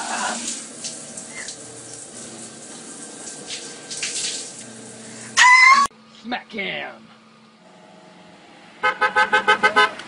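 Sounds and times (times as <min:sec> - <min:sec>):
water splashes: 0:00.0 - 0:04.7
shower water spraying: 0:00.0 - 0:05.4.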